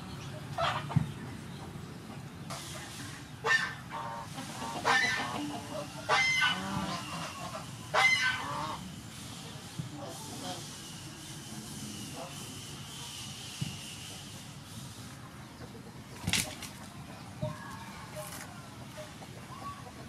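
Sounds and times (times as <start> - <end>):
fowl calling: 3.4 - 8.9.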